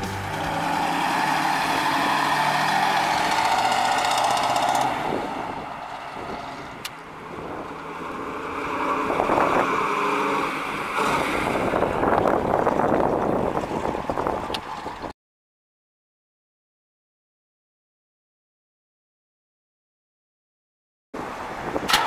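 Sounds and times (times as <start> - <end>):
car engine revving hard: 0.0 - 6.8, 7.4 - 12.0
car engine passing by: 0.0 - 12.4.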